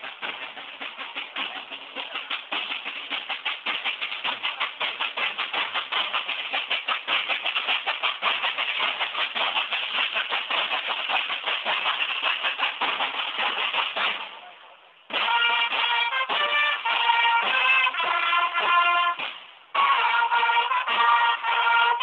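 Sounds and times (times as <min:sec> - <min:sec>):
marching drums: 0:00.0 - 0:22.0.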